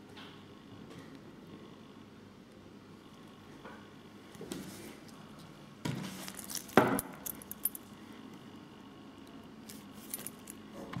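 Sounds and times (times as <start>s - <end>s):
wristwatches clinking and knocking: 6.2s - 7.9s, 10.0s - 10.6s.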